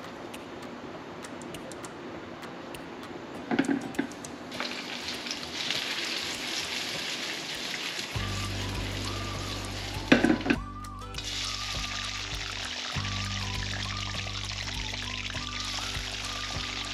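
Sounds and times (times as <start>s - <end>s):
food sizzling in a pan: 4.5s - 10.4s.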